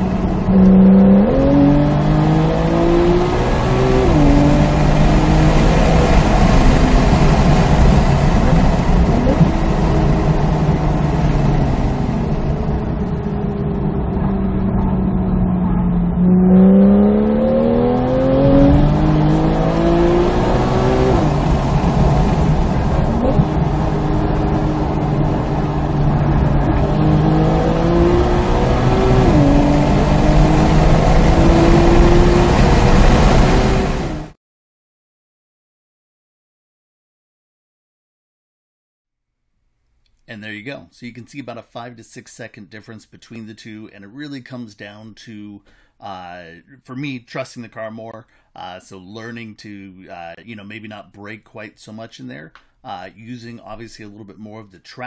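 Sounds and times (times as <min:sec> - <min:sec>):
car engine revving in cabin: 0:00.0 - 0:34.4.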